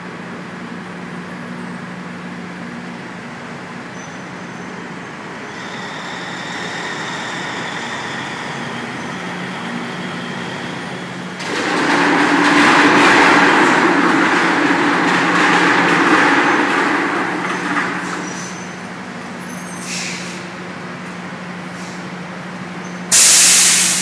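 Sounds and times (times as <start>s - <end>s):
machinery hum with faint whine: 0.0s - 24.0s
loud rushing grinding noise: 5.7s - 19.4s.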